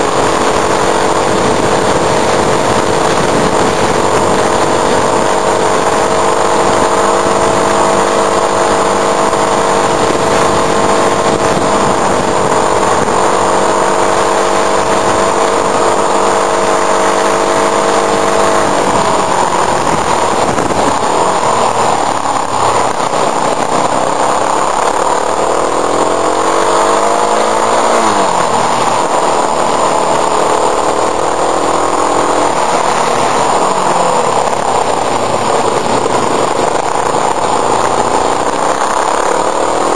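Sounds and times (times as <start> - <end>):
motorcycle engine running: 0.0 - 39.9
wind rushing over camera: 0.0 - 39.9.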